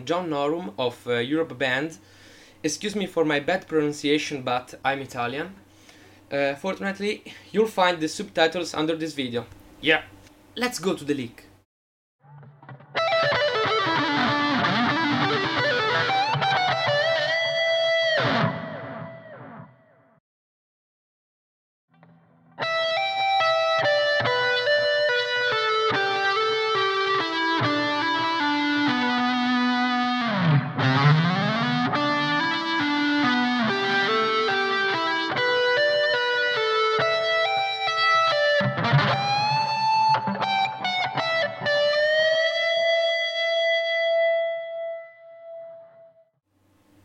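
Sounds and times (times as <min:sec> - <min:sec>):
distorted electric guitar: 0:12.2 - 0:20.0, 0:22.0 - 0:46.1.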